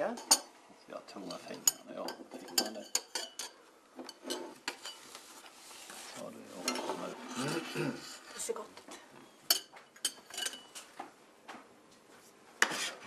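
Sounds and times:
cups and saucers clinking: 1.2 - 5.1, 9.4 - 10.8
clatter of tableware: 1.6 - 5.0, 6.6 - 7.8, 9.5 - 10.9.

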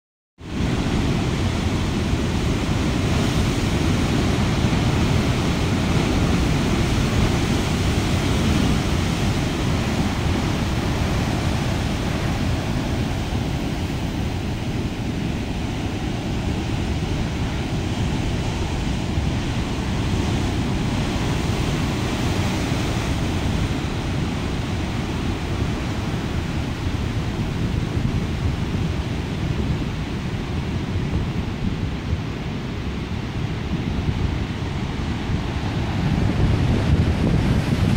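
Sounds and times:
waves crashing on rocks: 0.5 - 37.9.

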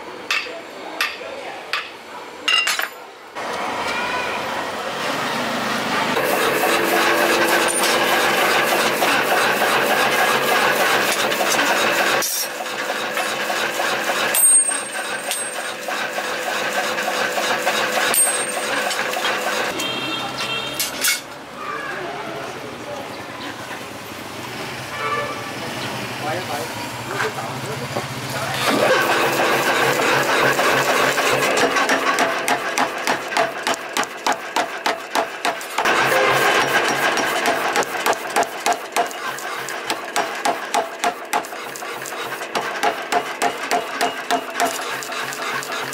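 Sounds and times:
power hammer pounding steel: 6.1 - 19.7, 28.7 - 45.9.

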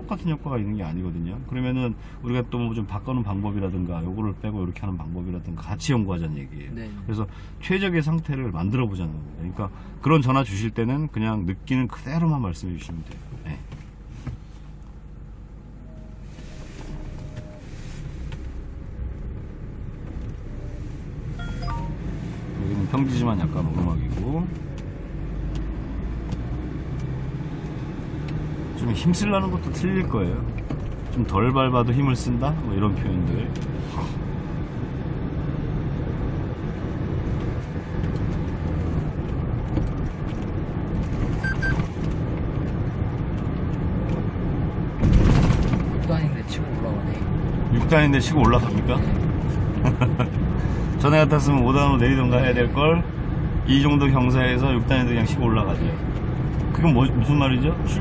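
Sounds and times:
road noise: 0.0 - 58.0
truck diesel engine: 14.5 - 31.5
brief high tone: 15.8 - 17.7, 21.4 - 22.0.

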